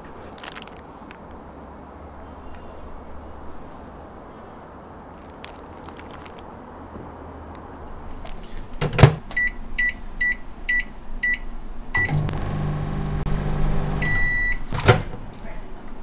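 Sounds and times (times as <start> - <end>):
microwave button beeps: 9.4 - 11.4, 12.0 - 12.4, 14.0 - 14.7
long microwave beep: 9.4 - 14.7
microwave oven humming: 12.0 - 15.0.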